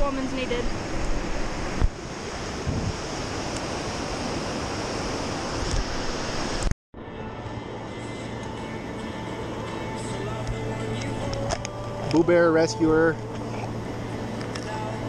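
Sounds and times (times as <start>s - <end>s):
water rushing over rocks: 0.0s - 6.7s
wind buffeting microphone: 0.0s - 6.7s.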